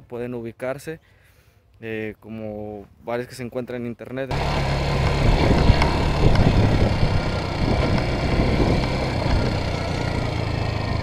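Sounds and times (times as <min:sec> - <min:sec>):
motorcycle engine running: 0:04.3 - 0:11.0.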